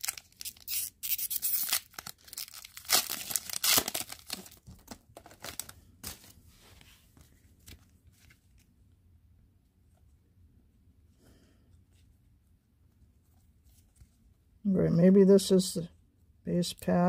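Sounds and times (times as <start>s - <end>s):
wrapper tearing and crinkling: 0.0s - 6.2s
cards rustling: 0.0s - 8.7s.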